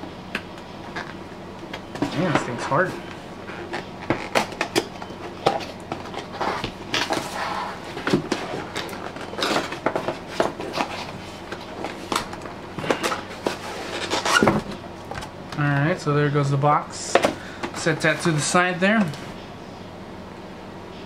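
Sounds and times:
cardboard scraping and rubbing: 0:06.0 - 0:14.8.

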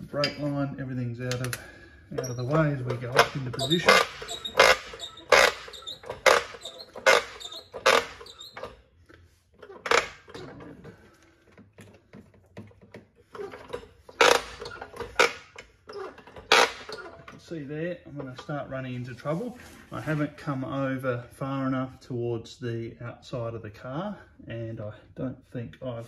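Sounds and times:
hydraulic jack creaking and clacking: 0:00.0 - 0:18.8.

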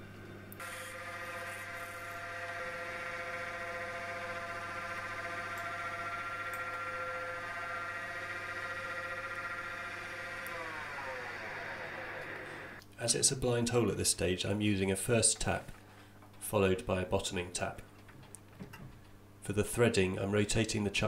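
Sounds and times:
drill cutting into metal bar: 0:00.6 - 0:12.8
lathe drive whine: 0:00.6 - 0:12.8.

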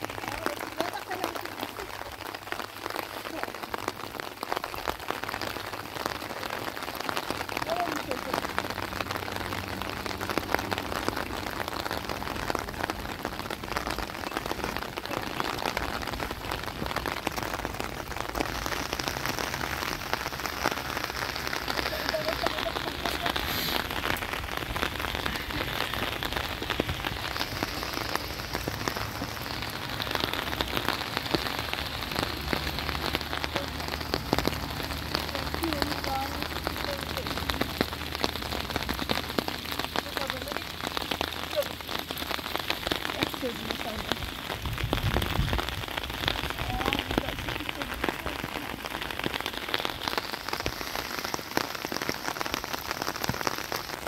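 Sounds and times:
rain pattering: 0:00.0 - 0:54.0.

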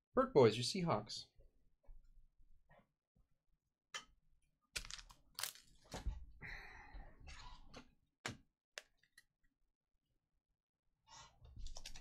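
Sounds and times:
trading cards rustling: 0:04.8 - 0:05.9.

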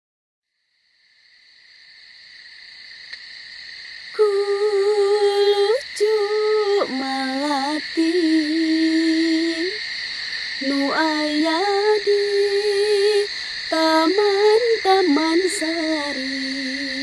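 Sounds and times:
woman singing long held notes: 0:04.2 - 0:09.8, 0:10.6 - 0:17.0.

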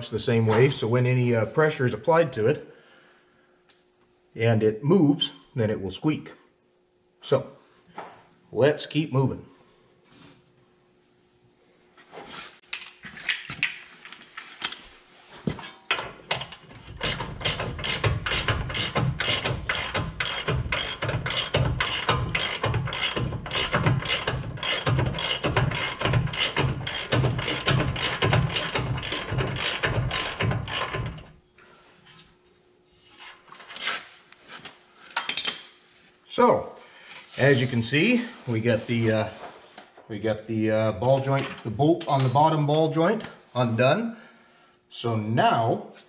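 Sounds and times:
ratchet wrench clicking: 0:16.3 - 0:31.3.

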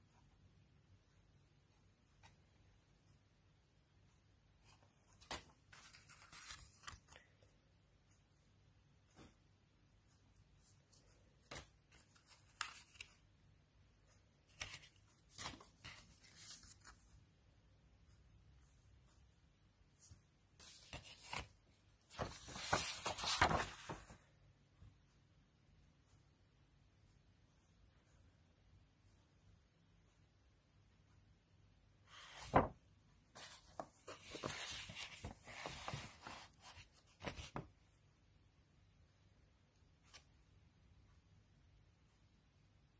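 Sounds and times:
paper sheets rustling: 0:04.6 - 0:07.2, 0:10.6 - 0:13.2, 0:14.4 - 0:17.2, 0:20.0 - 0:24.2, 0:32.1 - 0:37.7.

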